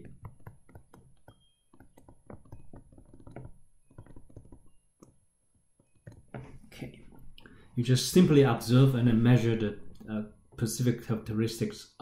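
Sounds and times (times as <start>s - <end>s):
stylus tapping on pen tablet: 0.0s - 7.4s.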